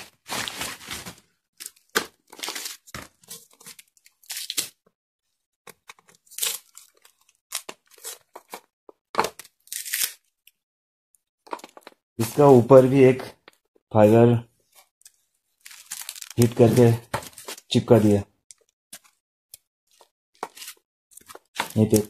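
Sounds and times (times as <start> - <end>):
paper and tape tearing: 9.7 - 10.3, 20.0 - 22.0.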